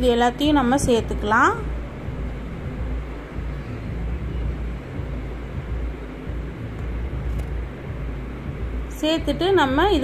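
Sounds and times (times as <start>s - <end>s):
low rumble with faint hiss: 0.0s - 10.0s.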